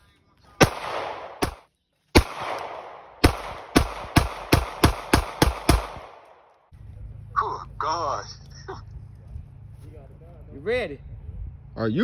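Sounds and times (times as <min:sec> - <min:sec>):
pistol shots echoing: 0:00.6 - 0:06.5.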